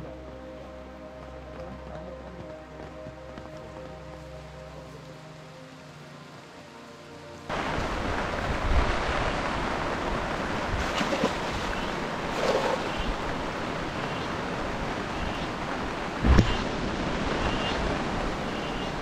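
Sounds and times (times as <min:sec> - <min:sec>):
river rushing: 0:03.9 - 0:19.0
low thump: 0:16.2 - 0:16.7.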